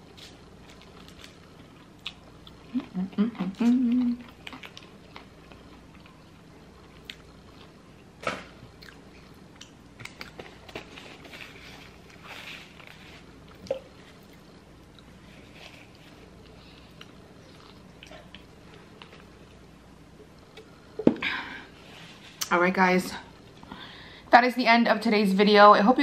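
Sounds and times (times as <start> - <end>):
chewing with small crunches: 0.0 - 20.7.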